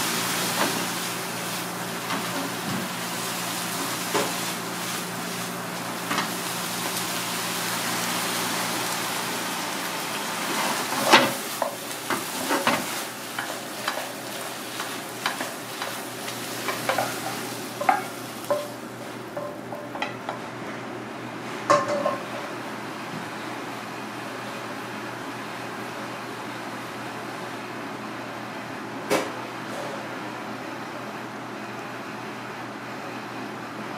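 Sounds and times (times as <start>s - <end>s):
food sizzling in a frying pan: 0.0s - 20.4s
spatula scraping and knocking pan: 11.0s - 18.8s, 19.4s - 20.4s.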